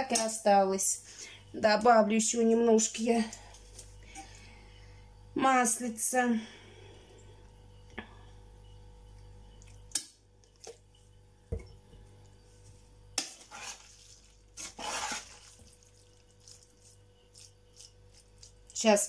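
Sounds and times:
pot scraping rustles: 0:12.5 - 0:19.0.

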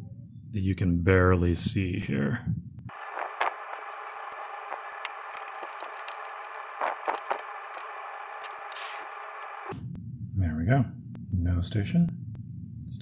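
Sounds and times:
steady hiss: 0:02.9 - 0:09.7.

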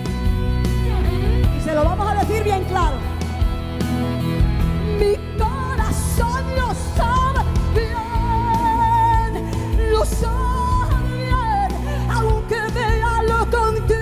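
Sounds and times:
instrumental accompaniment: 0:00.0 - 0:14.0
woman singing into a microphone: 0:04.8 - 0:14.0.

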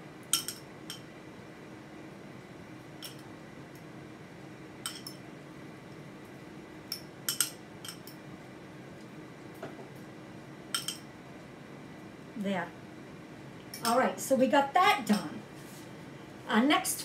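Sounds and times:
faint steady hum: 0:00.0 - 0:17.0
fork clinking against glass bowl: 0:00.3 - 0:01.0, 0:04.8 - 0:05.2, 0:06.9 - 0:08.2, 0:10.7 - 0:11.0.

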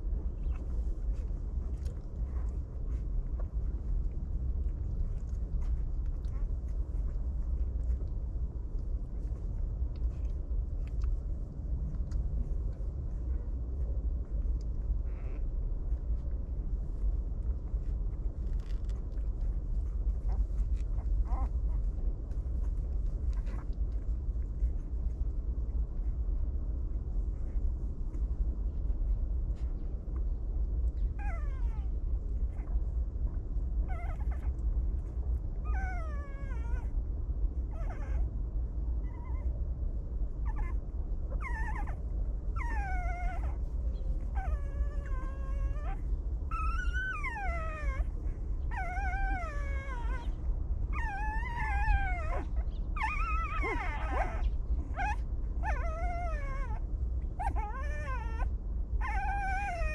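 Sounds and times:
low rumble: 0:00.0 - 0:59.9
puppies whimpering: 0:14.6 - 0:15.6, 0:17.8 - 0:24.9, 0:31.0 - 0:32.8, 0:33.8 - 0:37.0, 0:37.7 - 0:38.3, 0:40.4 - 0:59.9.

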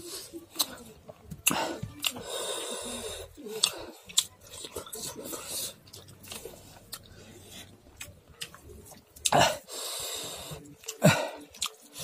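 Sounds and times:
man breathing noisily: 0:01.4 - 0:04.1, 0:09.5 - 0:11.4.

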